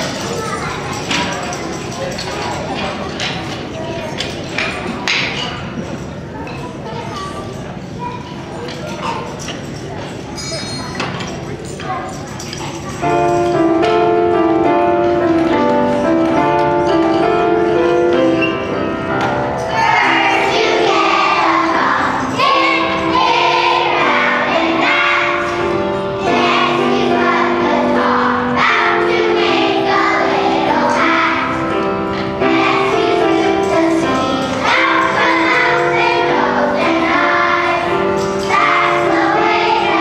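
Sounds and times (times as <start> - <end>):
children's choir singing: 13.0 - 40.0
musical accompaniment: 13.0 - 40.0.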